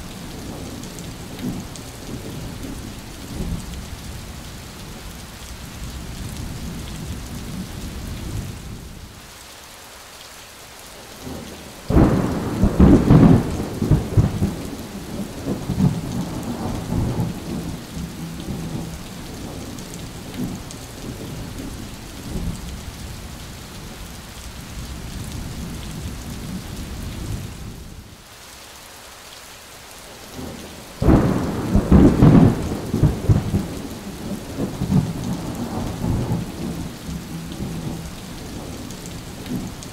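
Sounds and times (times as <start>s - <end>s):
steady rain: 0.0s - 39.9s
thunderclaps: 11.9s - 21.4s, 31.0s - 39.7s.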